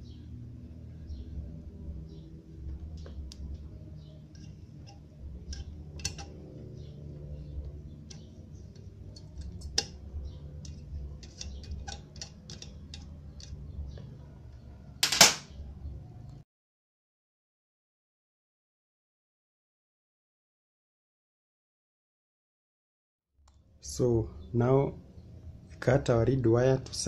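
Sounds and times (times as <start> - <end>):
low steady hum: 0.0 - 16.4
light clicks and taps of tools: 4.3 - 6.4, 10.6 - 14.1.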